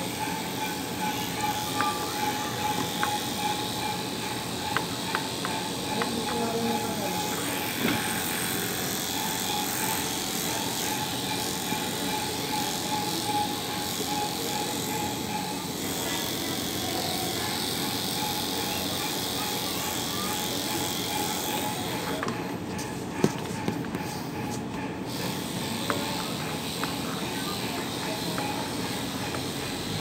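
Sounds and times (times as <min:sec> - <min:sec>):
electric clippers humming: 0:00.0 - 0:22.2.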